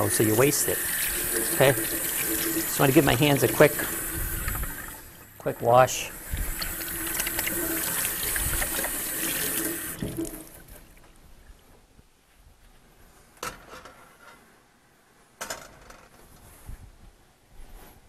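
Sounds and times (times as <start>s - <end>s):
hands washing under water: 0.0s - 5.3s, 6.1s - 11.0s
tap water running: 0.0s - 11.0s.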